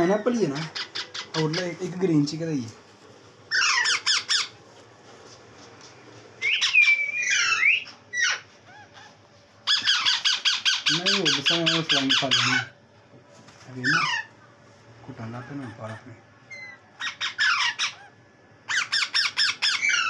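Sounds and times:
parakeet squawking: 0.0s - 2.0s, 3.5s - 4.6s, 6.4s - 12.8s, 13.8s - 14.4s, 15.3s - 20.0s.

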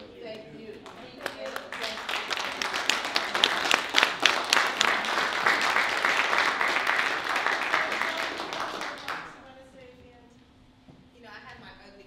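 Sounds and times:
audience applauding: 0.8s - 9.4s.

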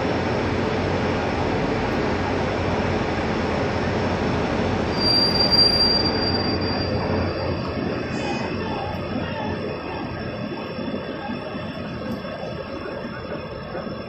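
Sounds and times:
train wheels rumbling on rails: 0.0s - 14.0s
high-pitched wheel squeal: 4.9s - 8.6s.

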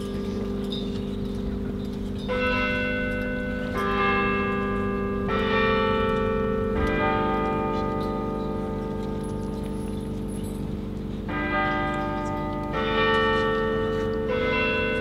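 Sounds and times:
deep bell chimes: 0.0s - 15.0s.

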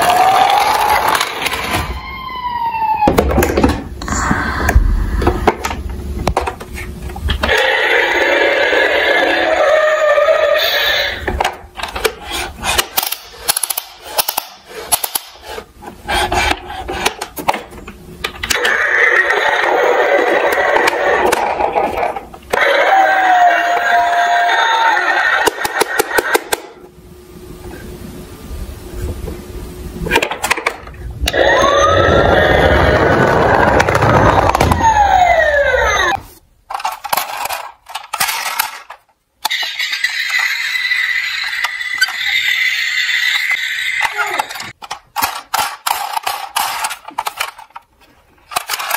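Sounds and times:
toy electronic siren wailing: 1.9s - 3.3s, 7.4s - 11.3s, 22.5s - 26.4s, 31.3s - 36.3s, 39.5s - 44.7s
toy wheels rolling on hard surface: 36.7s - 47.9s.

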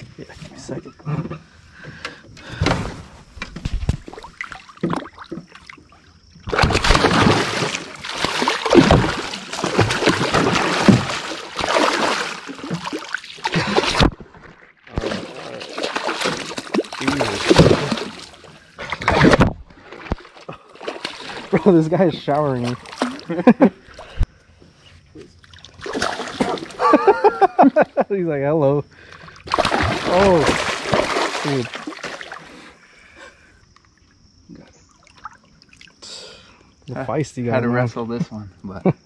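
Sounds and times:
fish splashing in water: 4.0s - 14.2s, 14.9s - 21.6s, 25.5s - 26.9s, 29.3s - 32.6s.

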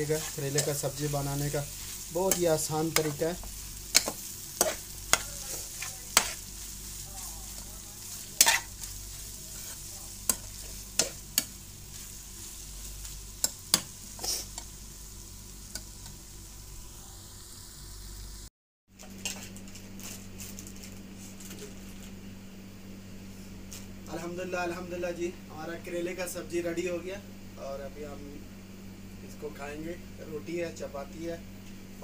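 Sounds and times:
food sizzling in a pan: 0.0s - 18.5s.

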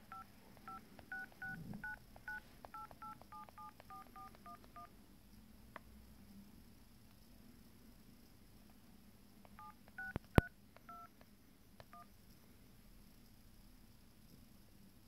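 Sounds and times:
phone keypad touch-tone beeps: 0.1s - 4.9s, 9.6s - 11.1s.

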